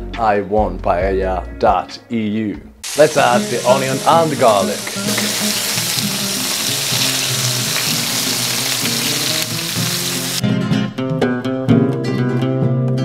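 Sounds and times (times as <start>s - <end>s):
onion sizzling in hot oil: 2.8s - 10.4s
spatula stirring in pan: 2.9s - 10.4s.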